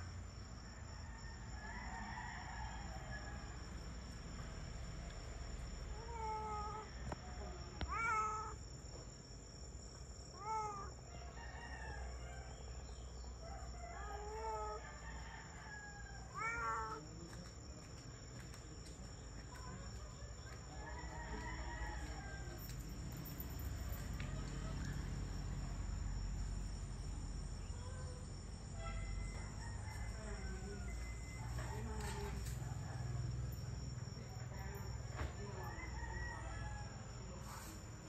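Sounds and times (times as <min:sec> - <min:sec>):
high insect drone: 0:00.0 - 0:38.0
roosters crowing: 0:20.6 - 0:22.9, 0:29.0 - 0:32.6, 0:35.3 - 0:37.4.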